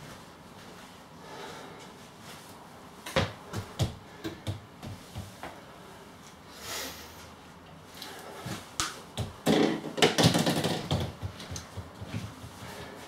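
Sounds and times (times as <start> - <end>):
footsteps on laminate floor: 3.1 - 5.6, 10.3 - 13.0
plastic bottle clattering and rolling: 9.4 - 11.4.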